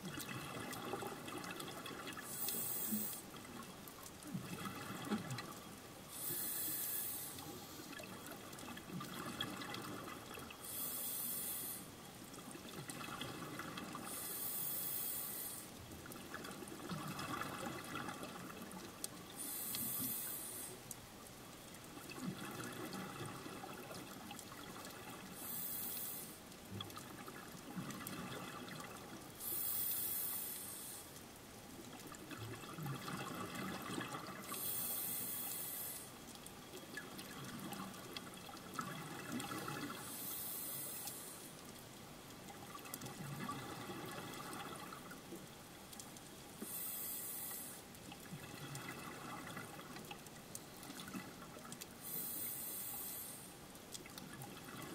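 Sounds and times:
diver breathing through regulator: 2.3 - 3.2, 6.1 - 7.9, 10.6 - 11.9, 34.6 - 36.1, 46.6 - 47.8.

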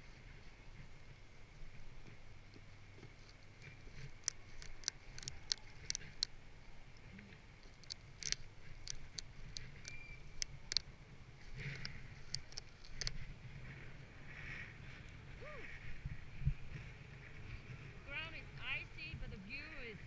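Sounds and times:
ratchet strap clicks: 4.0 - 6.4, 7.6 - 10.9, 11.6 - 13.2.

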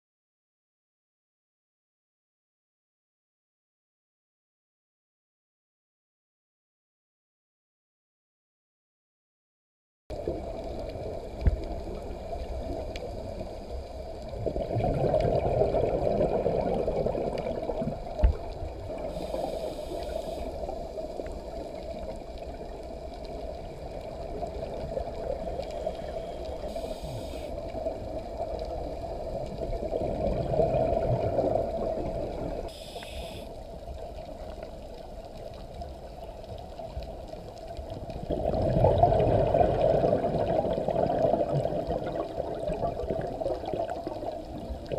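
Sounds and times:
exhaled bubbles gurgling: 10.1 - 44.9
regulator inhalation hiss: 19.1 - 21.2, 25.7 - 27.6, 32.7 - 33.6.

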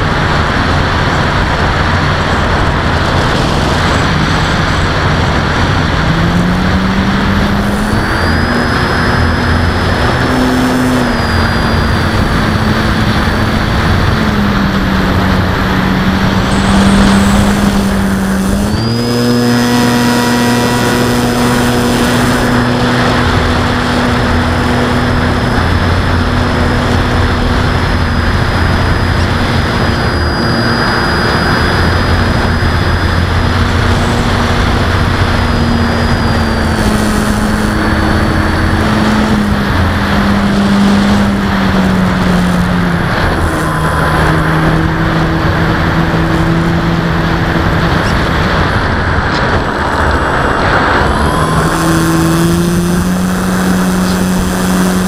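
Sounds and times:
model airplane motor buzzing: 0.0 - 55.0
wind noise: 0.0 - 55.0.

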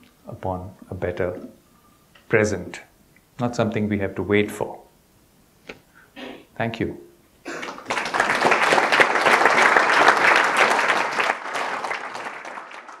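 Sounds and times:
audience applauding: 7.6 - 13.0.

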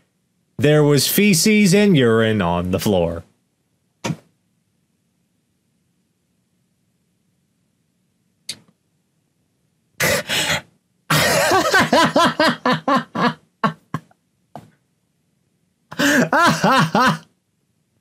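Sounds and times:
person laughing: 11.1 - 14.1, 15.9 - 17.3.

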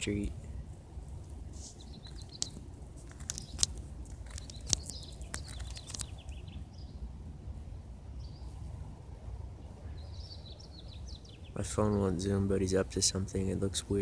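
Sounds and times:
small birds chirping: 0.0 - 7.2, 8.1 - 14.0
low steady rumble: 0.0 - 14.0
sharp clicks: 2.0 - 6.4.

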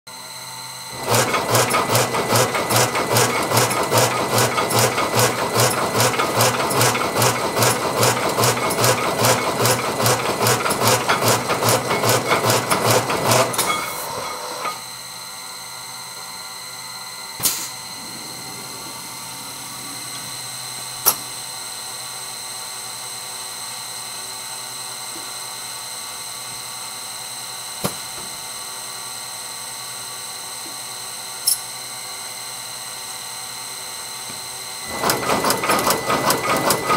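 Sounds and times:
machine humming: 0.1 - 22.8, 34.8 - 36.9
machine drilling wood: 0.9 - 14.8, 34.8 - 36.9.

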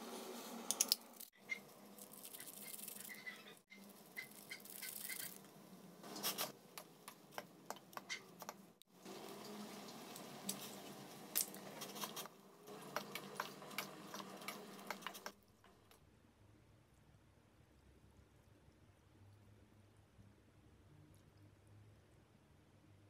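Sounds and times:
seasoning packet rustling: 1.9 - 3.2
wooden spoon stirring noodles: 6.2 - 16.0.

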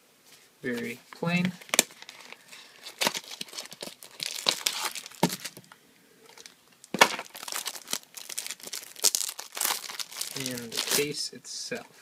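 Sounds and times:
plastic wrap crinkling: 1.5 - 5.7, 6.3 - 11.1.

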